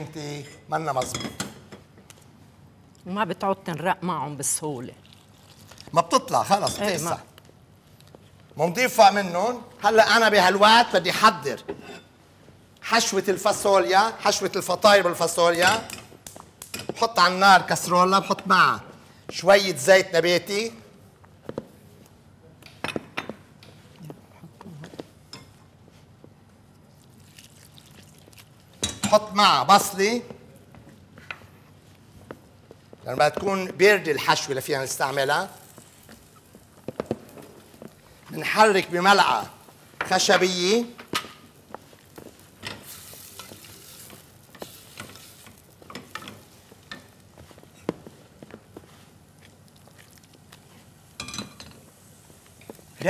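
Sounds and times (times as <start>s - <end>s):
onions sizzling in oil: 42.2s - 45.9s.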